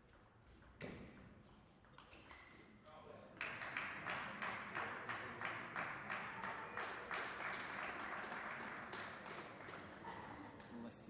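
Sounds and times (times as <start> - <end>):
spectators clapping: 3.4 - 11.0.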